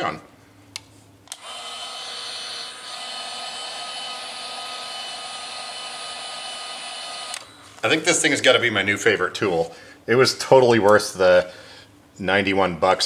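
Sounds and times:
heat gun fan whining: 0.7s - 8.6s.

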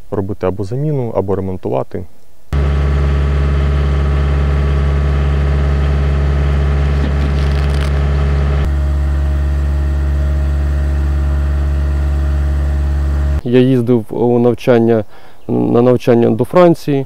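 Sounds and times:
engine running steadily: 2.6s - 13.4s.

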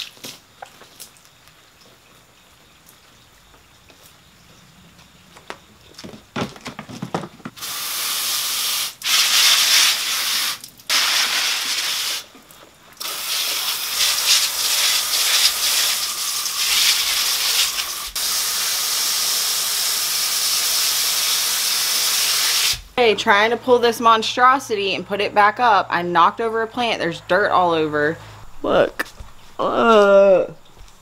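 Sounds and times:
plastic knocks and rattles: 5.4s - 7.6s
hose nozzle spraying water: 7.6s - 12.3s, 13.0s - 22.9s.

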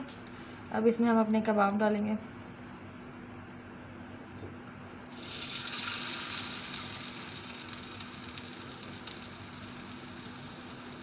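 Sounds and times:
patty sizzling in oil: 5.1s - 11.0s.

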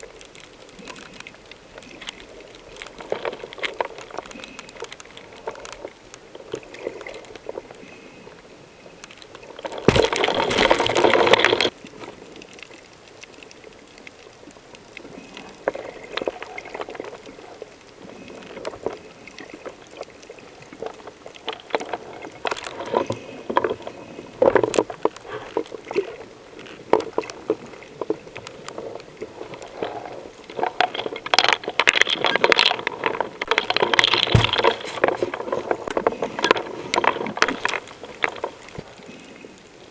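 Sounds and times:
crackle of small clicks: 0.0s - 39.9s.

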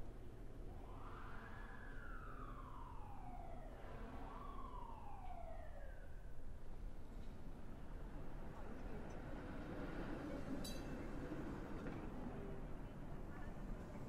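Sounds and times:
emergency siren wailing: 0.5s - 7.0s.

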